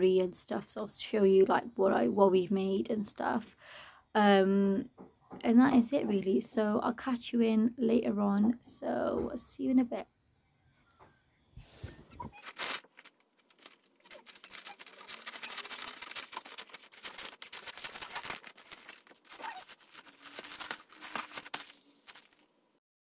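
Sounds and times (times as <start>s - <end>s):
wrapping paper crinkling: 12.3s - 22.5s
scissors cutting paper: 12.4s - 22.4s.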